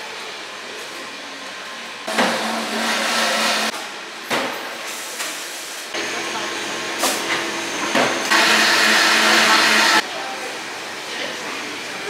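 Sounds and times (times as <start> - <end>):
coffee shop background noise: 0.0 - 12.0
espresso machine whirring: 2.1 - 3.7, 6.0 - 10.0.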